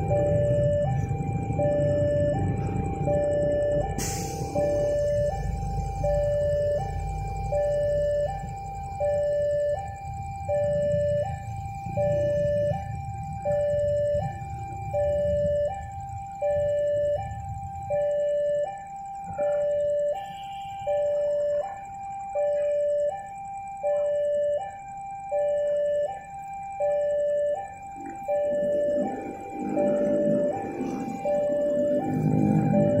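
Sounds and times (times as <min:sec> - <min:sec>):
low engine rumble: 0:00.0 - 0:18.5, 0:27.8 - 0:33.0
two-tone crossing alarm: 0:00.0 - 0:33.0.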